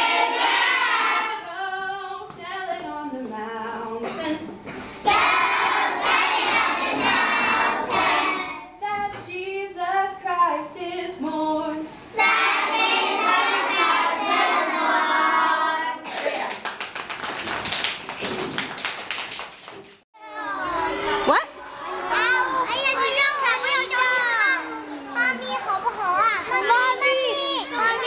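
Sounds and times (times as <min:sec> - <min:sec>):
children singing together: 0:00.0 - 0:02.8, 0:03.7 - 0:04.2, 0:05.0 - 0:09.2, 0:10.7 - 0:16.3, 0:20.2 - 0:23.1
children clapping hands: 0:16.2 - 0:20.0.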